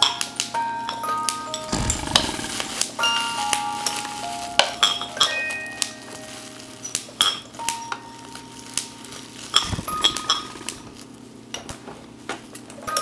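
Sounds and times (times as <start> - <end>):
low rumble: 1.7 - 2.8.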